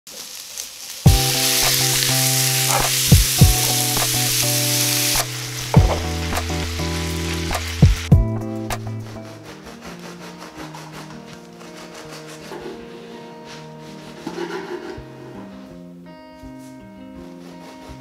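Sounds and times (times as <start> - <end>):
vegetables sizzling in a pan: 0.1 - 8.1
background music with steady beat: 1.1 - 9.5.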